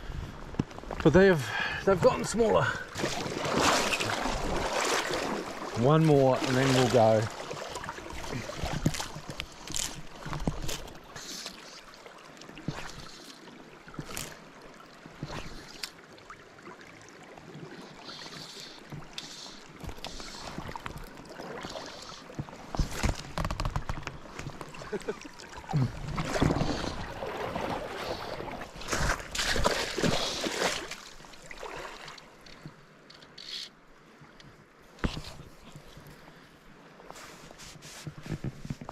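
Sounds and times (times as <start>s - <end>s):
river running over stones: 0.8s - 33.8s.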